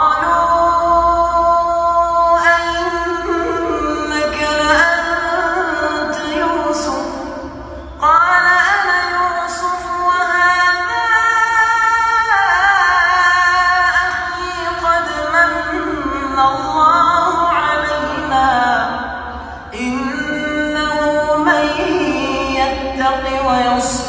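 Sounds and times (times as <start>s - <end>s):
man reciting melodically: 8.3s - 24.0s.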